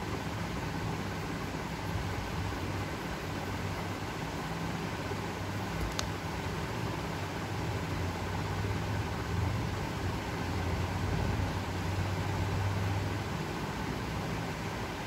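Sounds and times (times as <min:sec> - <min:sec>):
background hiss: 0:00.0 - 0:15.0
steady low hum: 0:00.0 - 0:15.0.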